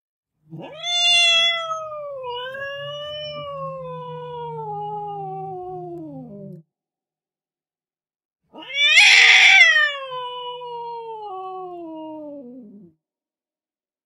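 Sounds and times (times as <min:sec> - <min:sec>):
cat meowing: 0:00.6 - 0:06.5, 0:08.5 - 0:12.4.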